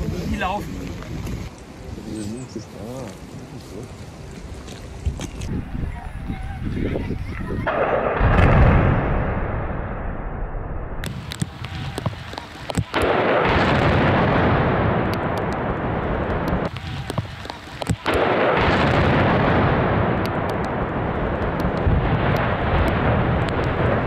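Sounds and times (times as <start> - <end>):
explosive charges cracking: 7.6 - 24.0.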